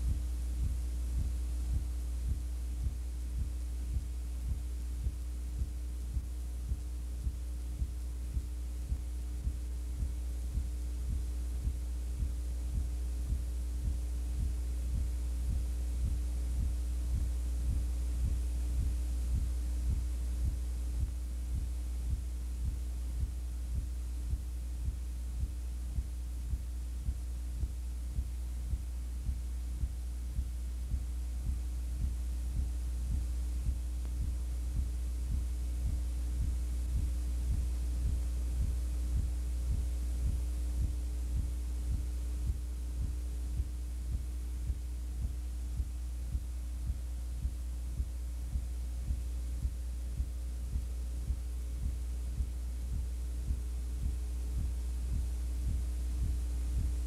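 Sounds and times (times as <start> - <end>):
electrical hum: 0.0 - 57.0
soft ticking: 0.0 - 57.0.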